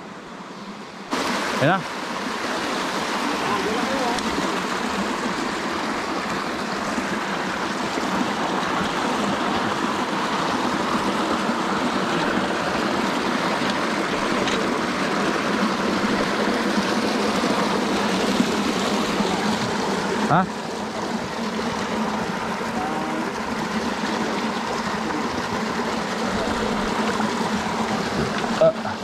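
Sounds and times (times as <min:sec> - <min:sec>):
mountain stream rushing: 0:00.0 - 0:29.0.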